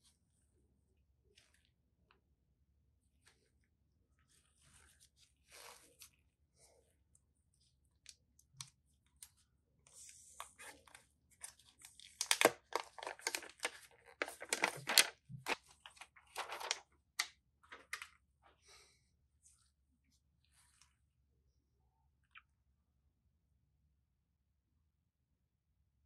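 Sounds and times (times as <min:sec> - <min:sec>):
plastic and cardboard crinkling: 0:10.6 - 0:16.9.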